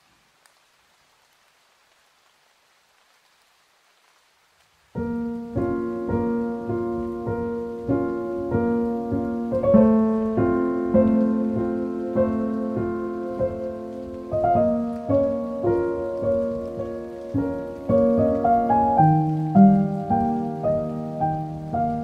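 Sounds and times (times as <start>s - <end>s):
faint rain hiss: 0.0s - 22.0s
solo piano piece: 4.9s - 22.0s.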